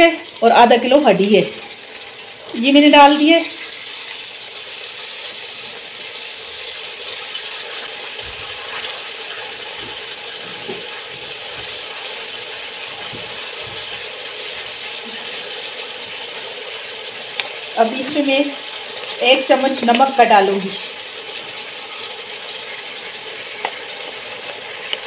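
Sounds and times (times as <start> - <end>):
meat sizzling in oil: 0.0 - 25.0
soft knocks: 13.0 - 13.9.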